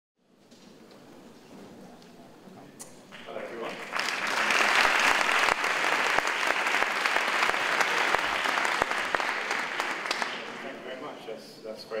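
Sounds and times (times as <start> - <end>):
audience applauding: 3.1 - 10.9.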